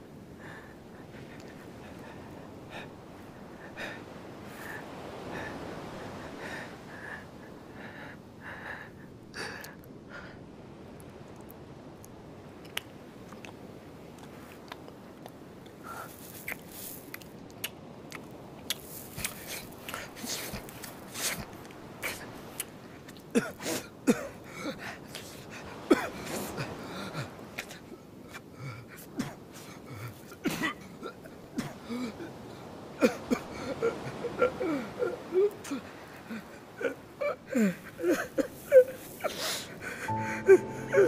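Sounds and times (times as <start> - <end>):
crunchy chewing clicks: 11.4 - 13.6.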